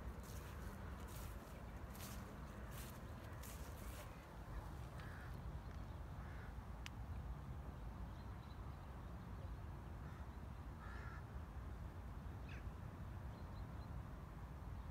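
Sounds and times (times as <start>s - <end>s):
crow cawing: 5.0s - 5.4s, 6.2s - 6.5s, 10.8s - 11.2s.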